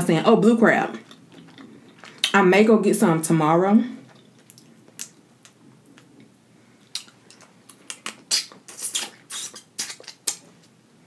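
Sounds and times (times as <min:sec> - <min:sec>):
wet mouth clicks: 0:04.1 - 0:10.7.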